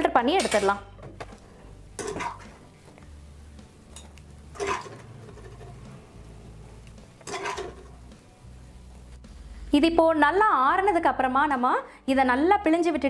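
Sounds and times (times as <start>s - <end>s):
skimmer clinking on cookware: 2.0s - 2.6s, 3.9s - 5.8s, 7.2s - 8.0s.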